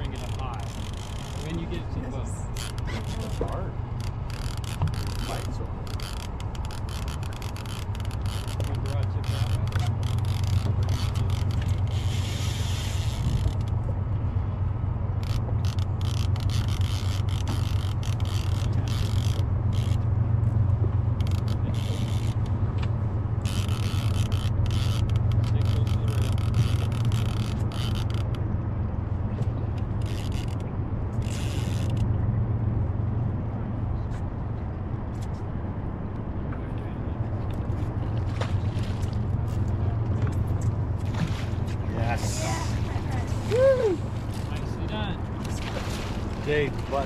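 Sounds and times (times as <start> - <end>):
fishing reel scraping and clicking: 0.0 - 1.8, 2.5 - 13.8, 15.2 - 20.0, 21.2 - 22.5, 23.4 - 28.4, 29.8 - 32.1
boat motor droning: 0.0 - 47.0.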